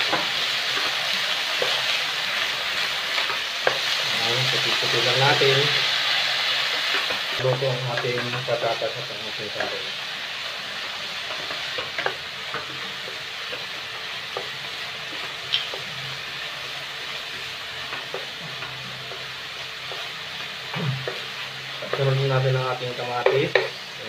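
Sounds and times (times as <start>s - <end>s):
vegetables sizzling in oil: 0.0s - 24.0s.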